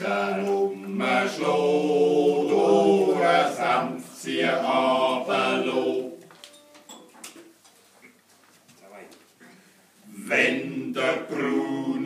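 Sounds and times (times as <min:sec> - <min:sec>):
group singing: 0:00.0 - 0:06.3, 0:10.0 - 0:12.0.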